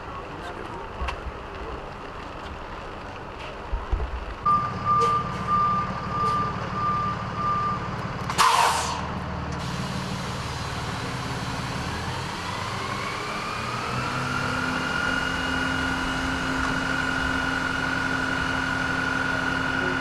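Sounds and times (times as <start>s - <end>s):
diesel engine running: 0.0s - 20.0s
truck reversing alarm beeps: 4.4s - 9.0s
air brakes hissing: 8.3s - 10.4s.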